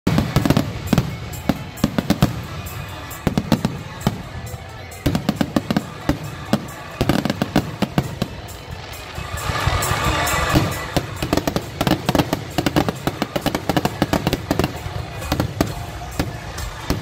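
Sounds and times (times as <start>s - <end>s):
firework bangs and crackles: 0.0s - 17.0s.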